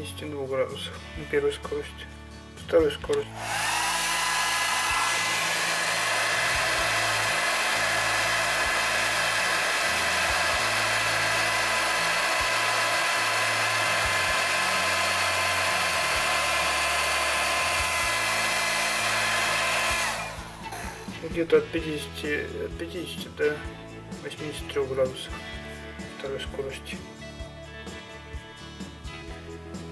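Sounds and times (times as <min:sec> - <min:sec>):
hair dryer running: 0:03.3 - 0:21.3.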